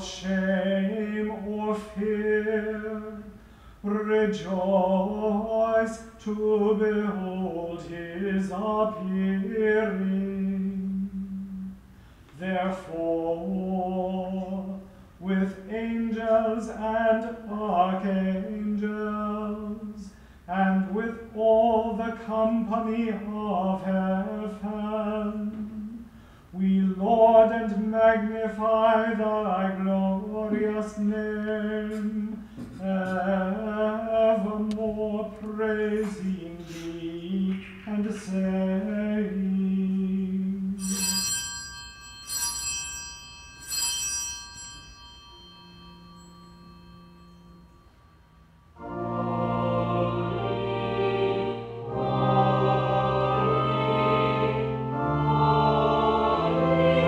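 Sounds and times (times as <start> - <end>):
small bell ringing: 40.8 - 48.6
choir singing: 48.8 - 57.0
organ: 48.8 - 57.0.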